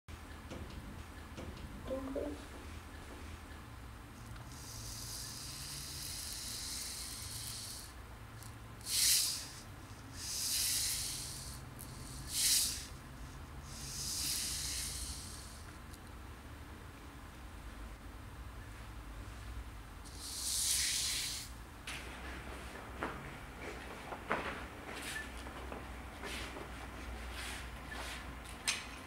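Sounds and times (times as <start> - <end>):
high-pitched hissing bursts: 4.5 - 8.0, 8.8 - 13.0, 13.6 - 15.7, 20.1 - 21.6.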